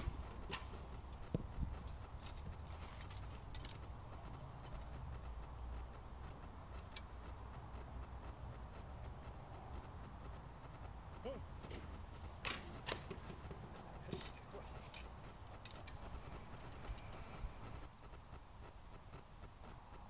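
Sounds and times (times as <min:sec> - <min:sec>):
low wind rumble: 0:00.0 - 0:20.0
light clicks of arrow handled: 0:14.1 - 0:17.3.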